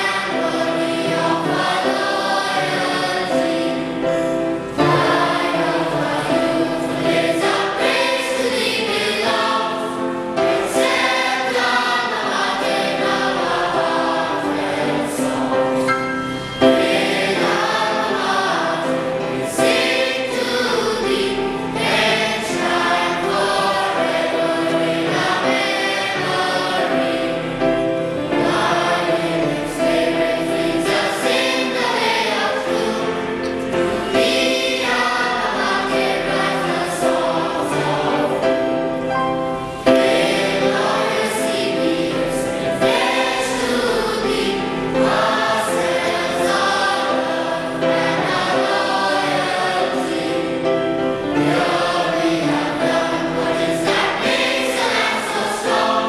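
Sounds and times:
choir singing: 0.0 - 56.0.

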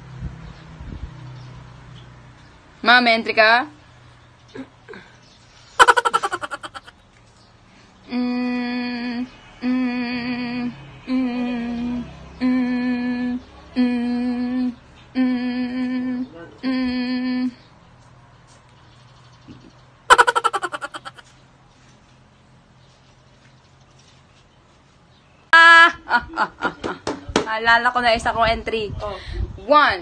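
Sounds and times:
woman humming: 5.8 - 6.9, 20.1 - 21.2
woman laughing: 5.8 - 6.9, 20.1 - 21.2.

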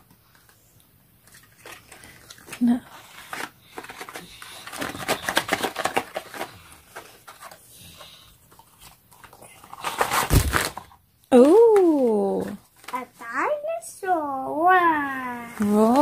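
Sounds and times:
packaging crackling and rustling: 1.2 - 7.7, 8.4 - 13.3, 15.4 - 16.0.

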